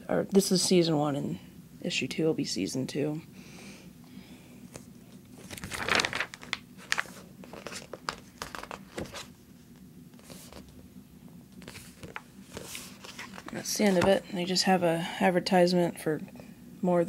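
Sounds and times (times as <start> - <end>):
magazine pages rustling: 4.7 - 9.4, 10.2 - 10.8, 11.6 - 14.2.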